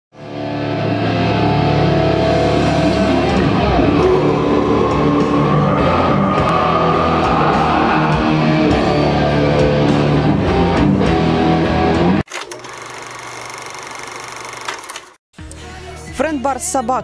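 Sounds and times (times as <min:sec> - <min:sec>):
heavy rock music with singing: 0:00.3 - 0:12.2.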